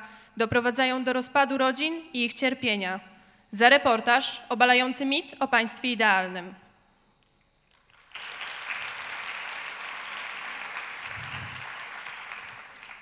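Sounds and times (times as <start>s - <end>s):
audience applause: 7.7s - 13.0s.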